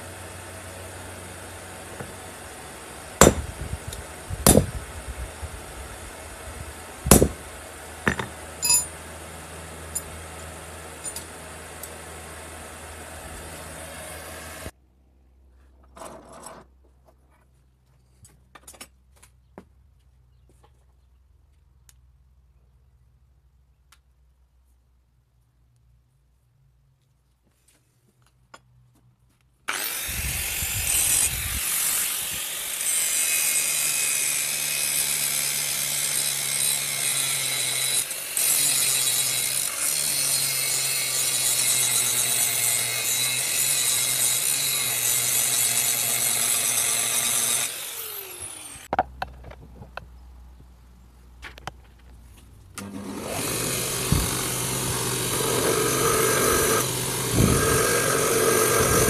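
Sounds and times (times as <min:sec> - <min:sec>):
angle grinder grinding metal: 0:00.0 - 0:14.7, 0:29.7 - 0:48.9, 0:52.8 - 0:59.0
belt grinder running: 0:29.7 - 0:48.9, 0:52.8 - 0:59.0.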